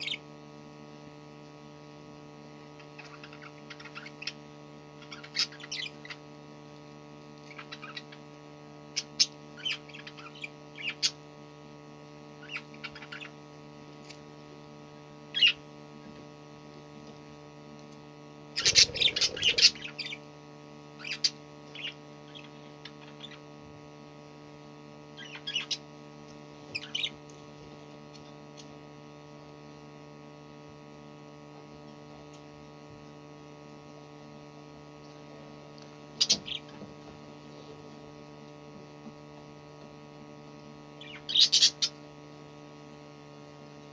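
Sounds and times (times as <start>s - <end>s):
budgerigars chirping: 0.0s - 0.2s, 3.0s - 4.4s, 5.0s - 6.2s, 7.5s - 8.2s, 9.0s - 11.2s, 12.4s - 13.3s, 15.4s - 15.6s, 18.6s - 20.2s, 21.0s - 23.4s, 25.2s - 25.8s, 26.7s - 27.2s, 36.2s - 36.8s, 41.0s - 42.0s
electrical hum: 0.0s - 43.9s.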